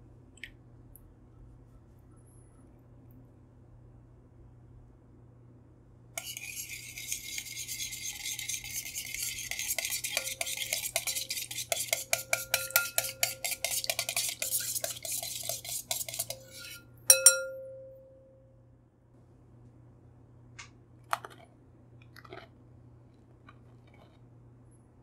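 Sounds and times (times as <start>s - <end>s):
whisk swishing liquid: 6.2s - 17.3s
whisk clinking on glass bowl: 6.2s - 18.2s.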